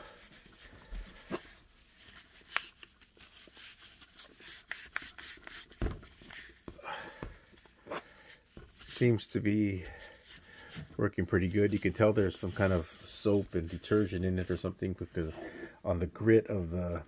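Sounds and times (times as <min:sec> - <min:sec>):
wet wipe rubbing plastic: 0:00.0 - 0:06.8, 0:09.8 - 0:15.4.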